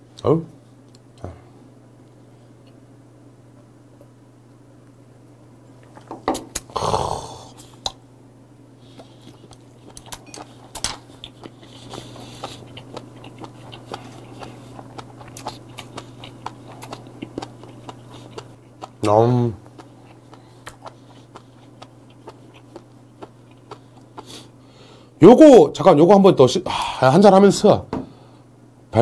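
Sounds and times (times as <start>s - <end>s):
crunchy chewing: 8.8s - 24.6s.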